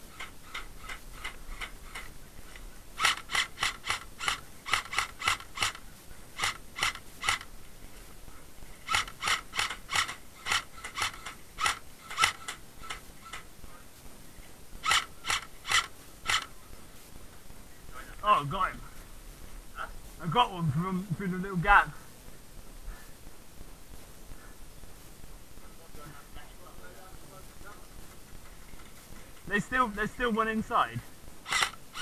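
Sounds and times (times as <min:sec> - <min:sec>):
airsoft rifle shots: 0:03.0 - 0:07.5, 0:08.8 - 0:13.5, 0:14.8 - 0:16.6, 0:31.4 - 0:32.0.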